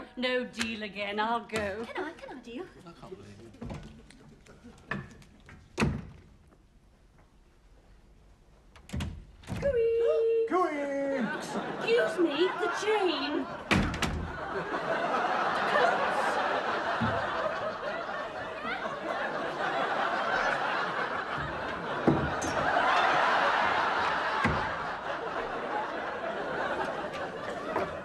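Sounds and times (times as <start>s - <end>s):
studio audience laughing: 11.1s - 28.0s
dull thumps: 21.3s - 22.9s, 23.6s - 25.0s.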